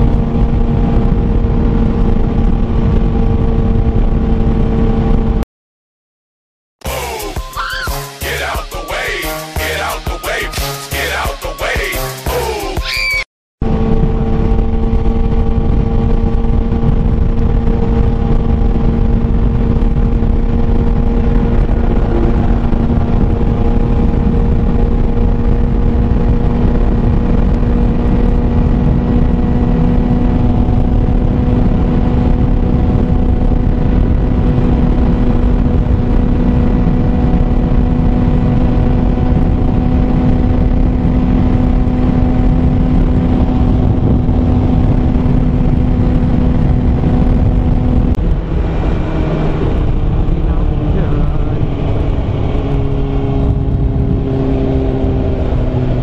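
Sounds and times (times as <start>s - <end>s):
motorcycle engine cruising: 0.0s - 5.4s, 13.6s - 56.0s
wind noise on microphone: 0.0s - 5.4s, 12.9s - 56.0s.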